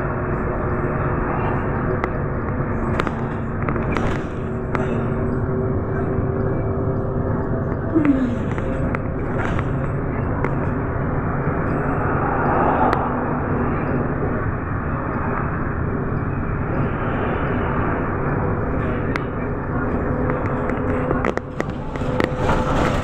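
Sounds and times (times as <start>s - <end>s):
bus engine and road noise: 0.0s - 23.0s.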